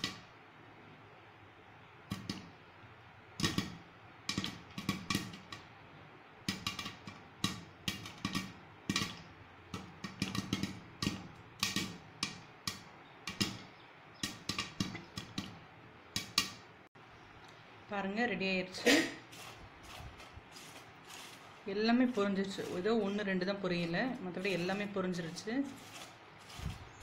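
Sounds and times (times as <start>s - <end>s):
popcorn popping in covered pan: 0.0s - 0.3s, 2.1s - 2.6s, 3.4s - 5.8s, 6.4s - 16.7s, 19.3s - 27.0s
popcorn knocking against glass lid: 3.4s - 5.7s, 6.4s - 15.6s.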